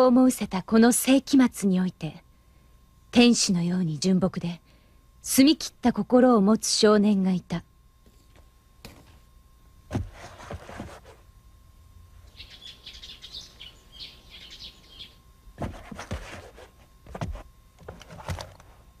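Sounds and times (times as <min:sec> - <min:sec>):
small birds chirping: 0:12.2 - 0:15.2.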